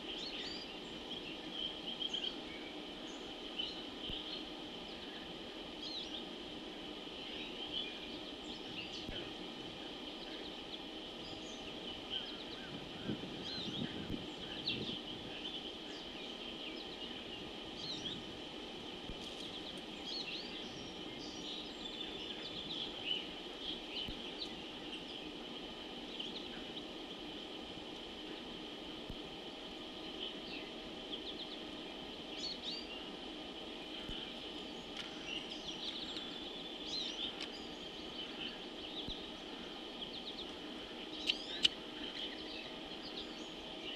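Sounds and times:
high-pitched background hum: 0.0 - 43.9
bird chirps and calls: 33.8 - 43.9.

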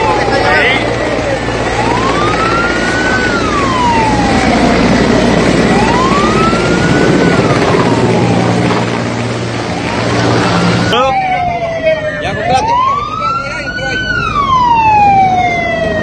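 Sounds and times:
emergency siren wailing: 0.0 - 16.0.

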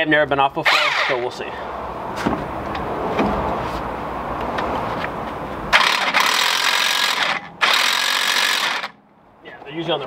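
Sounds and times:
impact wrench hammering: 5.7 - 9.0.

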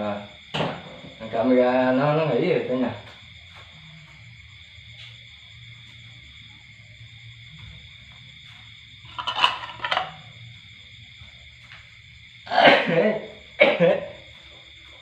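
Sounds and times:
crickets chirring: 0.0 - 15.0
person coughing: 12.5 - 14.1.

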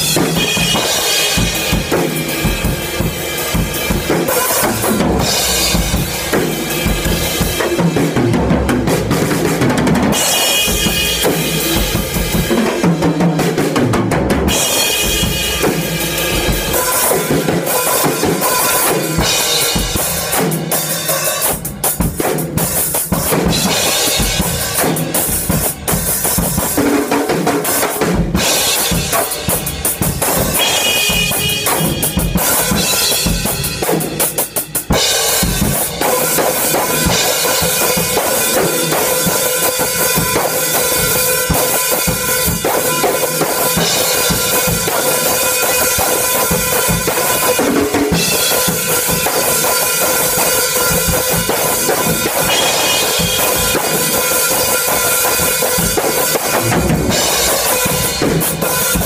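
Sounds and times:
bass drum: 0.0 - 18.4, 50.8 - 59.0
ringing cymbals: 28.5 - 35.6
snare drum: 30.1 - 34.2, 42.6 - 59.0.

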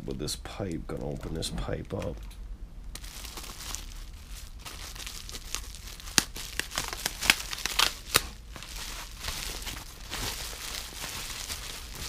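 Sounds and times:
bubble wrap crinkling: 2.9 - 12.0
bubble wrap snapping: 2.9 - 12.0.

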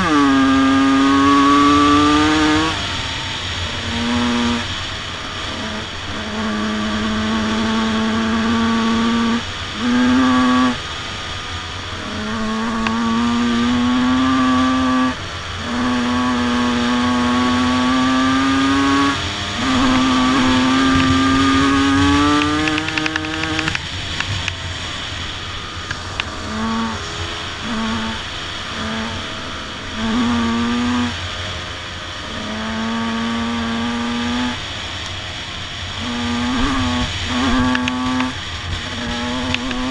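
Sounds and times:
two-stroke motocross bike engines: 0.0 - 39.9.

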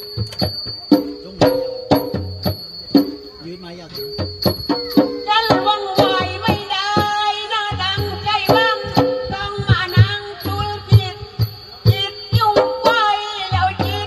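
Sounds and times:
drums and percussion: 0.0 - 14.0
woman singing through microphone: 5.2 - 14.0.

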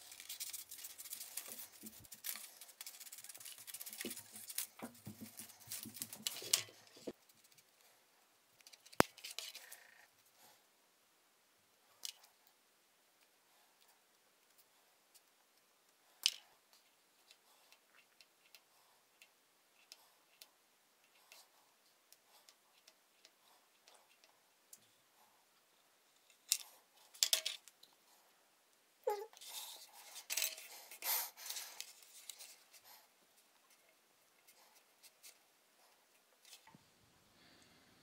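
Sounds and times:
paper crackling and rustling: 0.0 - 7.6.

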